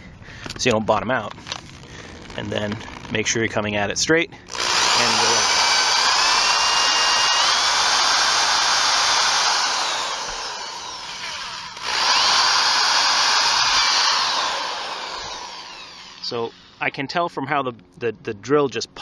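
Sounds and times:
drill bit popping through: 0:01.5 - 0:03.4, 0:04.5 - 0:16.8
electric drill whining: 0:04.5 - 0:16.8.

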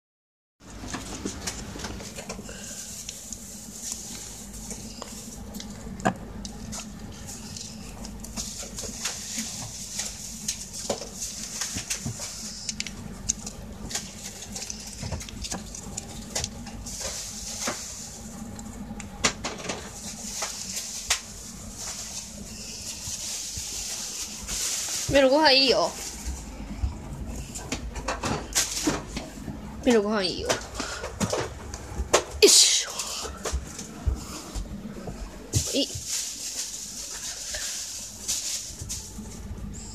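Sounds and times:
low background hum: 0:00.6 - 0:39.9
plastic pouch crinkling: 0:02.8 - 0:18.4, 0:35.6 - 0:39.3.

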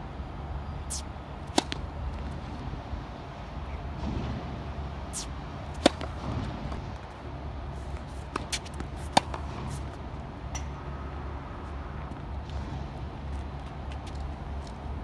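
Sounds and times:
tennis racket hitting ball: 0:00.9 - 0:01.9, 0:05.1 - 0:06.8, 0:08.1 - 0:09.9
distant ball hits and bounces: 0:05.8 - 0:06.8.

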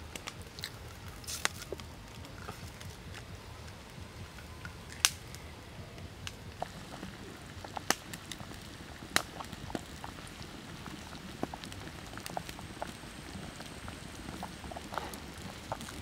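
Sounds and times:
wood fire pops and crackles: 0:00.0 - 0:16.0
liquid bubbling in a wok: 0:06.0 - 0:16.0.

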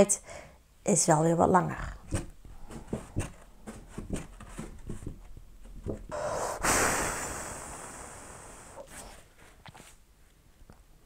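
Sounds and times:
blowing breath on paper: 0:06.1 - 0:09.3.

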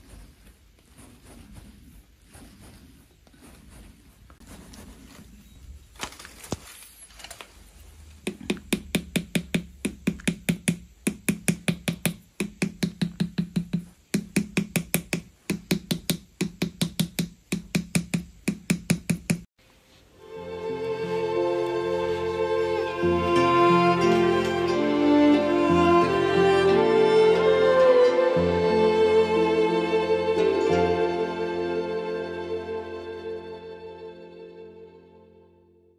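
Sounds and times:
faint tool on clay sounds: 0:00.0 - 0:05.9
wooden tool tapping clay: 0:08.2 - 0:19.5.

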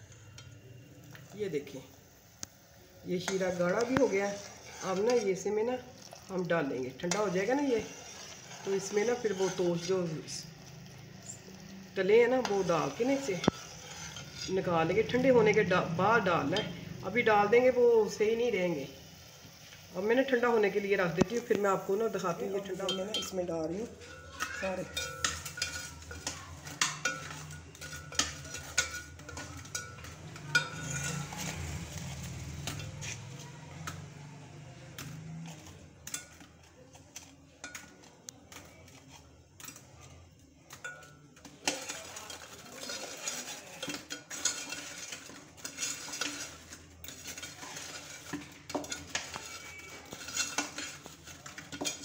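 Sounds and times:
utensils clinking on metal pan: 0:03.1 - 0:19.1, 0:19.8 - 0:52.0.

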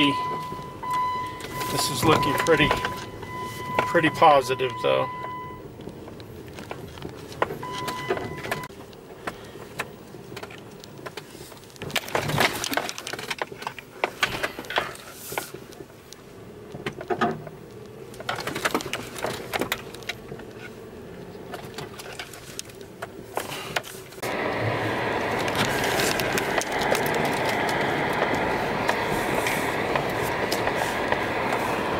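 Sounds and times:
vehicle running noise: 0:00.0 - 0:31.9
knocks rattles and crunches: 0:05.8 - 0:15.9, 0:16.7 - 0:24.3, 0:25.2 - 0:31.6.

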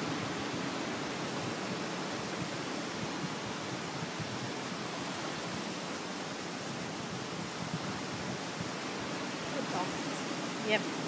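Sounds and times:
ocean surf breaking: 0:00.0 - 0:11.0.

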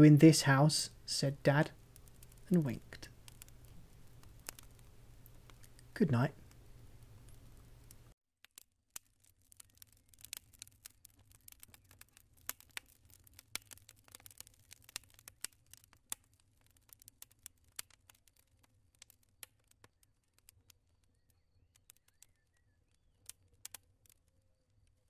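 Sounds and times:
wood fire crackling: 0:00.0 - 0:25.0.

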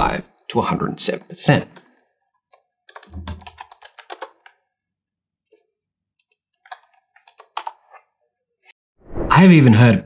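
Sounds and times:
typing on computer keyboard: 0:02.5 - 0:04.6, 0:06.2 - 0:07.8.

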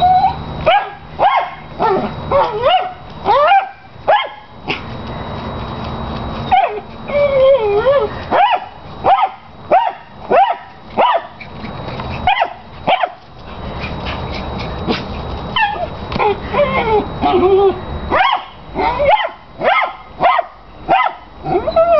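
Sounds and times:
dog whining: 0:00.0 - 0:03.8, 0:06.4 - 0:08.6, 0:13.8 - 0:18.2, 0:18.8 - 0:19.3, 0:21.4 - 0:21.9
dog barking high-pitched: 0:00.7 - 0:04.5, 0:06.5 - 0:06.8, 0:08.3 - 0:11.4, 0:12.3 - 0:13.2, 0:18.1 - 0:21.3.

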